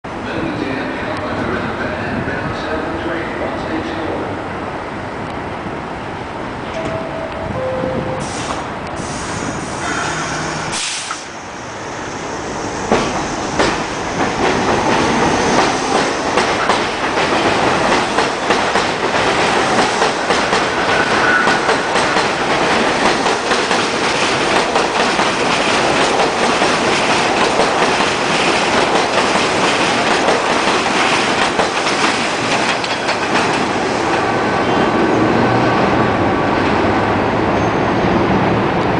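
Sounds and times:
subway train passing: 0.1 - 38.9.

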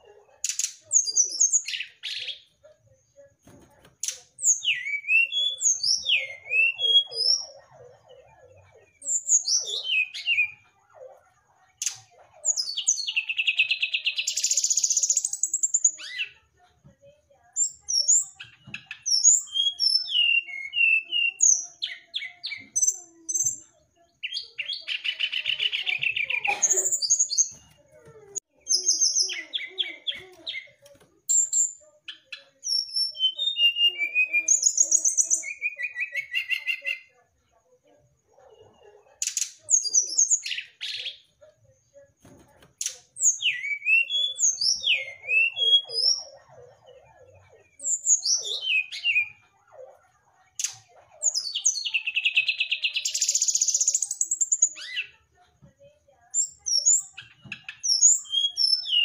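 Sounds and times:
bird singing whistled song: 4.4 - 7.5, 43.2 - 46.2, 47.8 - 49.4, 56.4 - 59.0.

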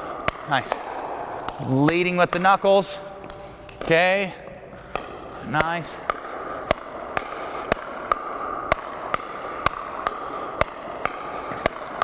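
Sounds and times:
paddles hitting plastic ball: 0.0 - 12.0.

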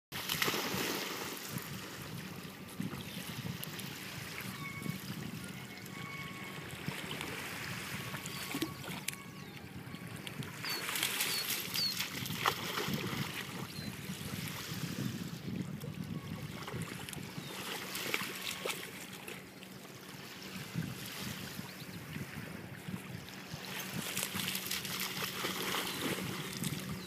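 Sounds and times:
dog splashing through water: 23.9 - 26.5.

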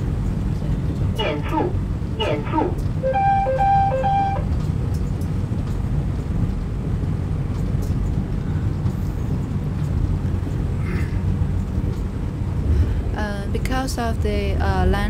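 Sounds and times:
electric train rumble: 0.0 - 15.0.

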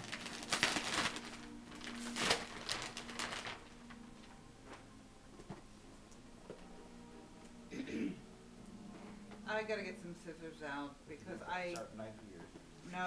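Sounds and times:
wrapping paper tearing: 0.0 - 4.1.

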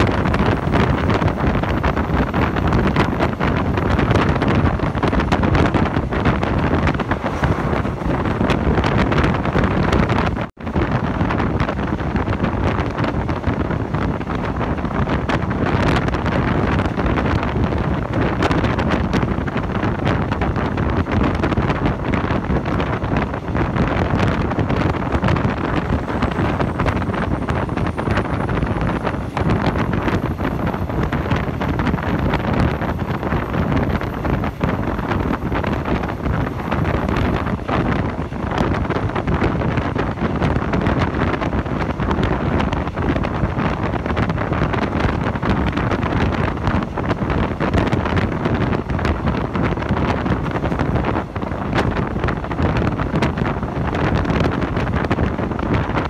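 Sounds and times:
moving train running noise: 0.0 - 56.0
wind rushing over microphone: 0.0 - 56.0.

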